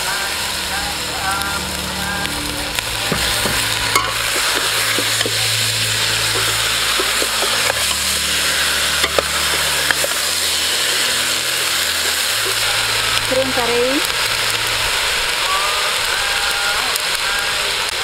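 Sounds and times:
food sizzling in a pot: 0.0 - 18.0
metal ladle scraping a pot: 2.8 - 13.4.

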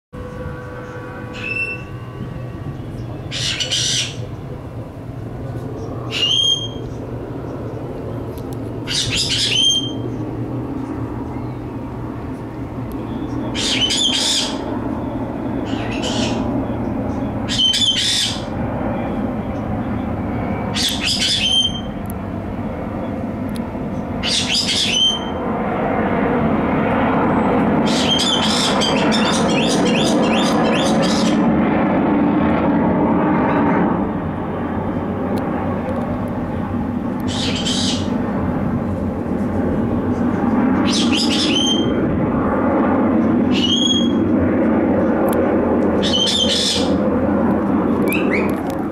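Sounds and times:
low jet rumble overhead: 0.2 - 48.9
bird chirping call: 0.7 - 2.1, 2.8 - 4.3, 5.8 - 7.8, 8.9 - 10.2, 13.0 - 20.1, 20.8 - 22.0, 24.2 - 25.4, 27.9 - 31.4, 37.3 - 38.1, 40.8 - 42.0, 43.5 - 44.2, 46.0 - 46.9, 48.0 - 48.6.

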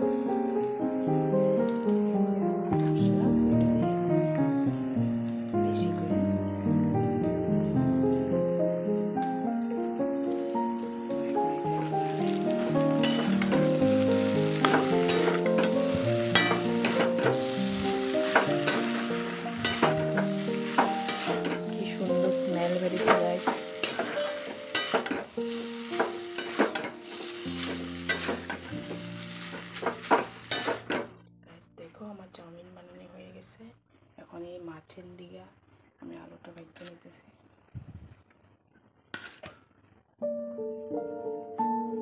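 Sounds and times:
background music sustained notes: 0.0 - 33.1, 40.2 - 42.0
noodles sizzling in a wok: 11.7 - 31.2
spatula scraping a pan: 13.0 - 22.1, 22.7 - 31.1.

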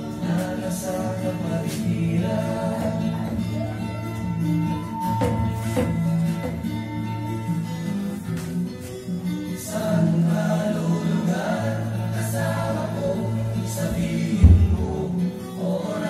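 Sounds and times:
gospel song with choir: 0.0 - 7.9, 9.4 - 16.0
deep low thump: 14.4 - 15.0.

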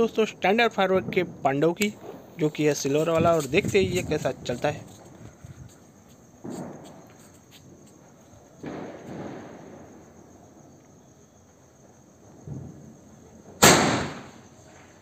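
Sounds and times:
firework blast: 1.0 - 5.1, 6.4 - 7.1, 8.6 - 10.0, 13.6 - 14.6
soft firework thuds: 1.0 - 7.9, 8.5 - 10.0.

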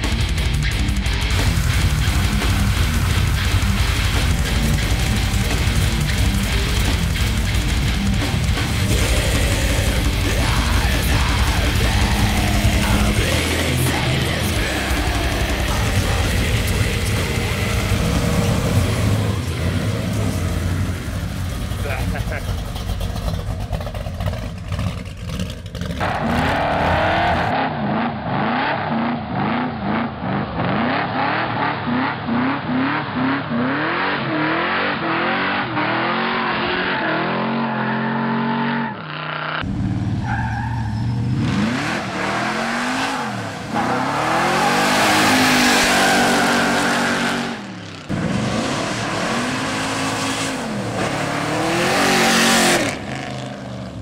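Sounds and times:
truck engine revving: 0.0 - 54.0.

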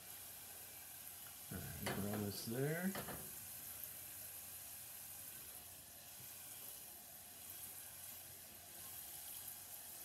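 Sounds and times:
garlic sizzling in oil: 0.0 - 10.0.

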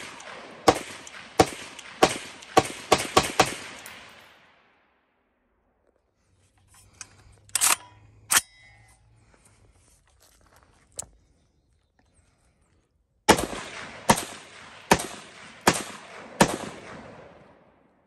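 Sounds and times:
rifle shots echoing: 0.0 - 4.9, 13.3 - 18.0
rifle action clacking: 7.0 - 8.6.

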